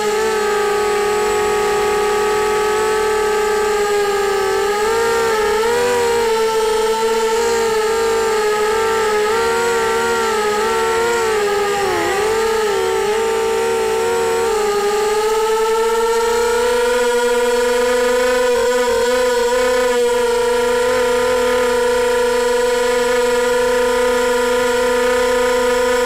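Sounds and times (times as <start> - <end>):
quadcopter motors whining: 0.0 - 26.0.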